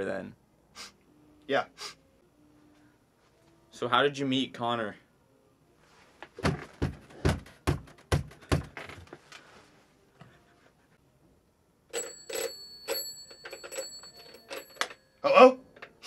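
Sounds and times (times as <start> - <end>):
telephone bell ringing: 11.9 - 15.7.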